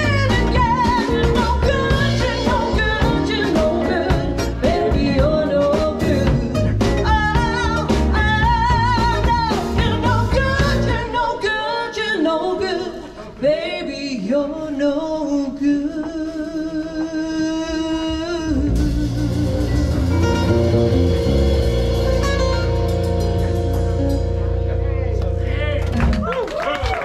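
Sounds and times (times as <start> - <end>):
acoustic instrumental backing: 0.0 - 11.3, 16.0 - 26.4
woman singing: 0.0 - 20.0.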